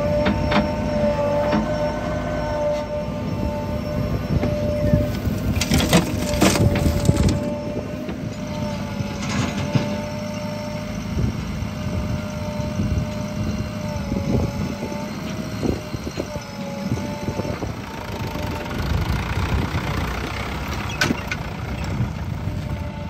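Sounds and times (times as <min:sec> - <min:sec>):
diesel engines running: 0:00.0 - 0:23.0
steady whine: 0:00.0 - 0:23.0
soil and stones crashing into trailer: 0:05.4 - 0:07.5.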